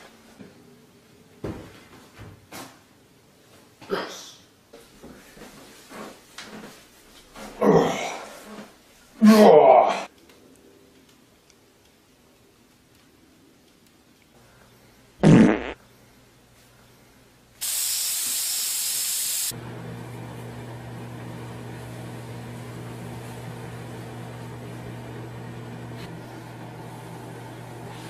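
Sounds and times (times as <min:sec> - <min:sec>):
fart noise: 0:15.2 - 0:15.8
loud hiss: 0:17.6 - 0:19.5.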